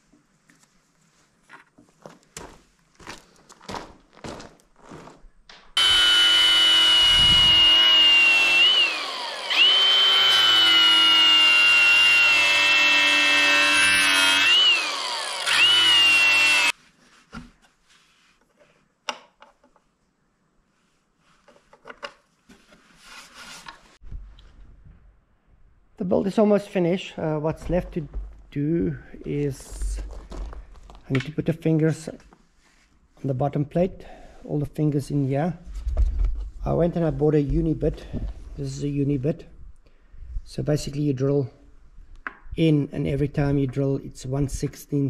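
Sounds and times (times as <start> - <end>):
knocks and handling sounds: 0.0 - 5.8, 16.8 - 20.0, 21.0 - 25.2, 27.5 - 28.6, 29.7 - 31.4
angle grinder whining on metal: 5.8 - 16.7.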